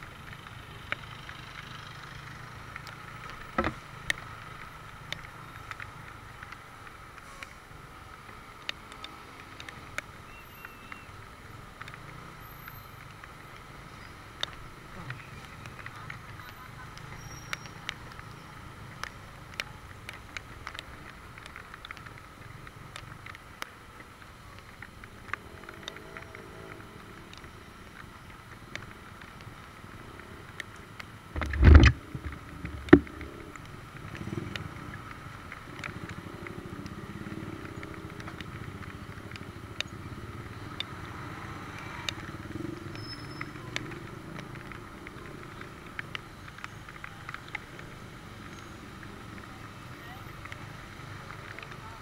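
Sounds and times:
engines rumbling: 0:00.0 - 0:52.0
light ticks: 0:00.2 - 0:52.0
loud thump: 0:31.4 - 0:33.0.

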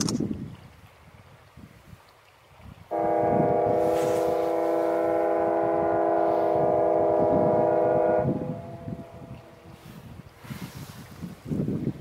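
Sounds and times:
ship horn blast: 0:02.9 - 0:09.8.

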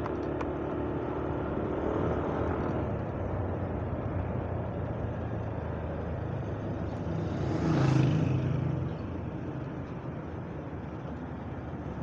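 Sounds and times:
road noise: 0:00.0 - 0:12.0
vehicle passing by: 0:06.2 - 0:09.1.

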